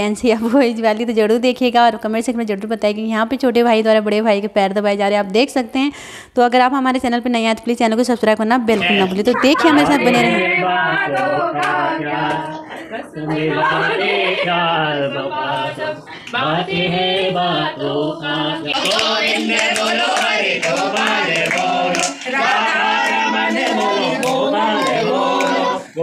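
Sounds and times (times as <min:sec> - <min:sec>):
group singing: 0:08.8 - 0:26.0
hand clapping: 0:11.1 - 0:12.5, 0:18.7 - 0:25.8.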